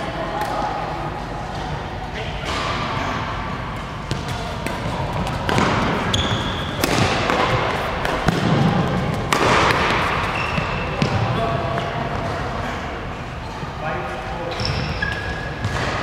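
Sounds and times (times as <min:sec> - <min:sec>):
shoes squeaking on court floor: 0:03.9 - 0:12.5, 0:13.3 - 0:16.0
racket striking shuttlecock: 0:04.1 - 0:10.4.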